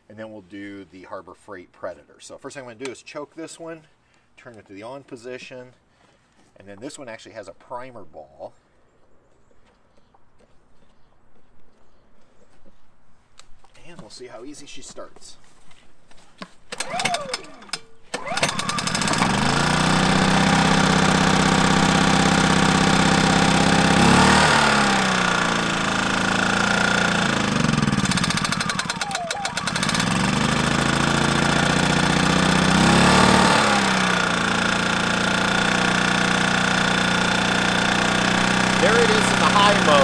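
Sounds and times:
small generator engine starting: 16.7 - 40.0.

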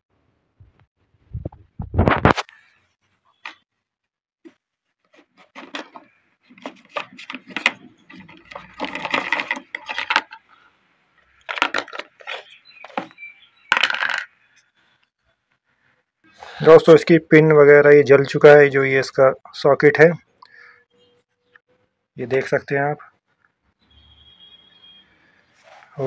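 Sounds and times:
plastic housing clicks and scrapes: 5.2 - 10.6, 11.4 - 14.3.

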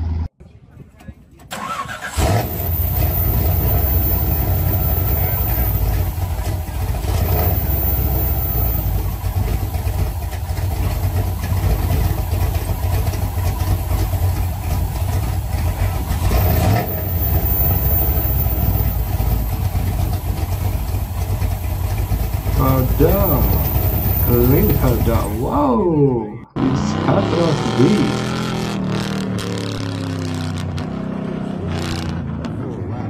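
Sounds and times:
car engine idling: 1.0 - 26.6.

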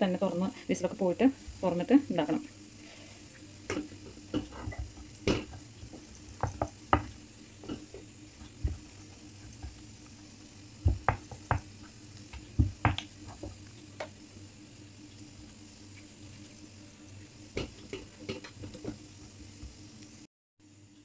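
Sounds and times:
faint steady hum: 0.0 - 21.0
rolling pin knocking on wooden board: 5.2 - 7.9, 10.8 - 11.7.

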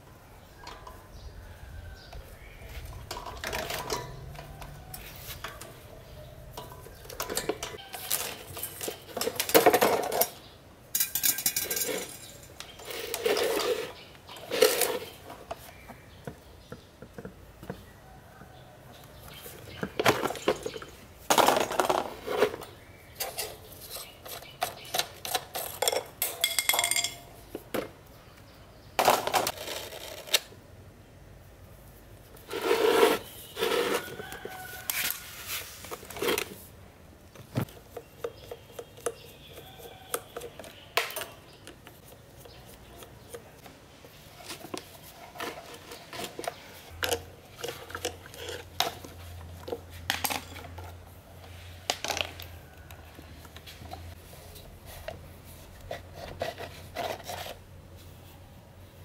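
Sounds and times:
metal clinks taps and scrapes: 2.8 - 15.9, 22.4 - 27.6.

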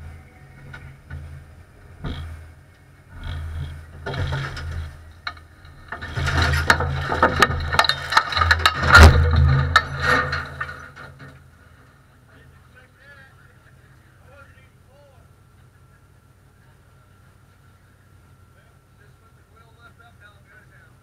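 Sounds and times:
engine running unevenly: 0.0 - 21.0
rattling and sharp knocks: 0.6 - 2.5, 3.1 - 11.4.

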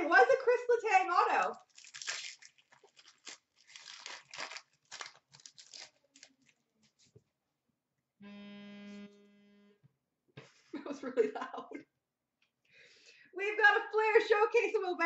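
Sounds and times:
steady buzzing tone: 8.2 - 9.8.

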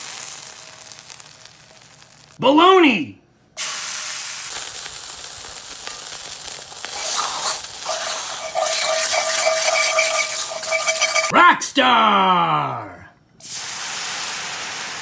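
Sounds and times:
meat sizzling in a skillet: 0.0 - 2.4, 3.6 - 11.3, 13.4 - 15.0.

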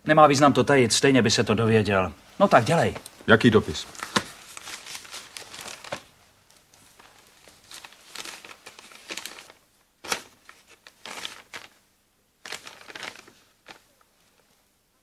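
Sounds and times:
paper rustling and crinkling: 2.4 - 11.8, 12.4 - 14.6.

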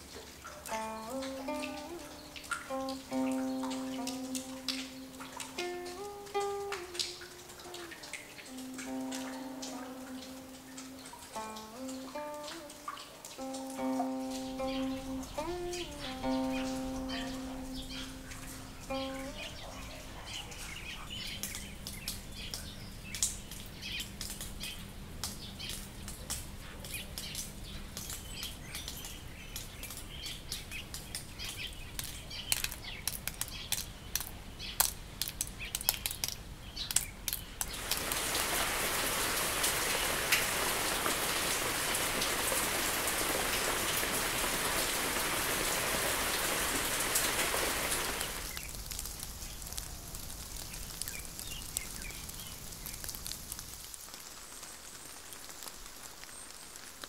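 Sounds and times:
bird chirps: 13.8 - 21.8.

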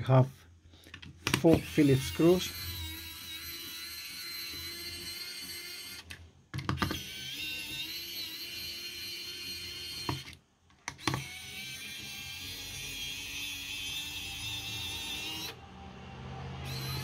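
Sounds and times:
electric screwdriver running: 1.3 - 15.6, 16.6 - 17.0.

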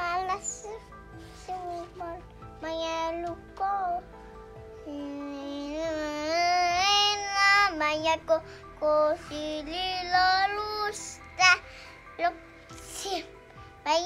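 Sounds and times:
toddler singing: 0.0 - 4.1.

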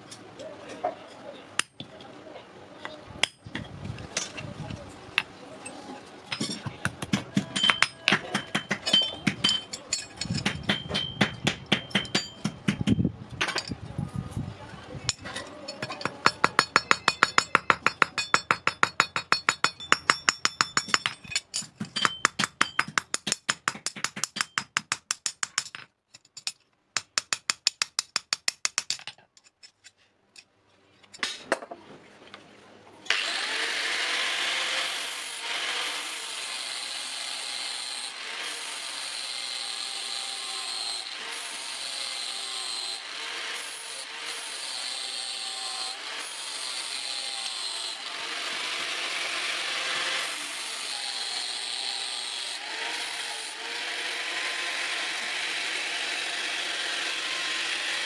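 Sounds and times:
hammer blows on rivet and anvil: 6.3 - 13.8, 15.1 - 29.2.

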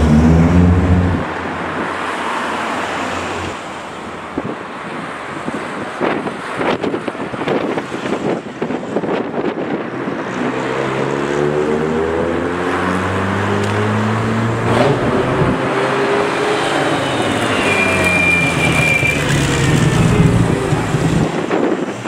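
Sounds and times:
cars driving past: 0.0 - 5.5
tyre and road noise: 0.0 - 22.0
thin high whistle-like tone: 17.0 - 19.3.

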